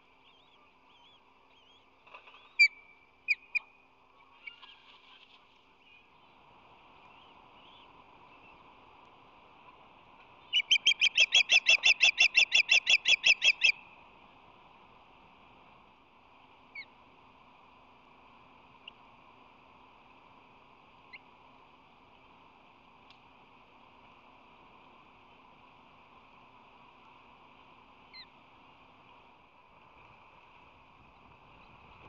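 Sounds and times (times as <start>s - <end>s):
osprey whistled chirps: 0.2s - 3.7s, 10.5s - 13.8s.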